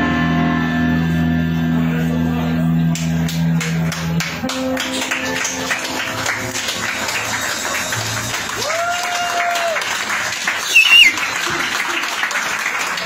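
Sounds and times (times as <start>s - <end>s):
live band playing: 0.0s - 9.2s, 10.1s - 11.5s
audience applauding: 2.9s - 13.0s
long whistle from crowd: 10.6s - 11.2s.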